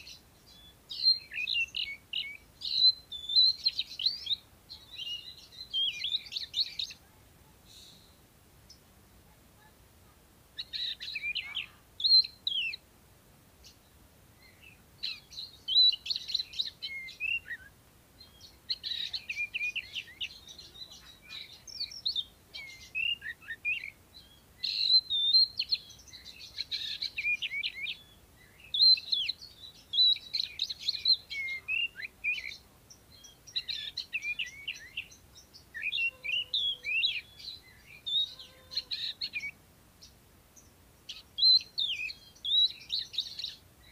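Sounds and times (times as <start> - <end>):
bird singing whistled phrases: 0.5 - 7.0, 14.4 - 35.2, 41.1 - 43.6.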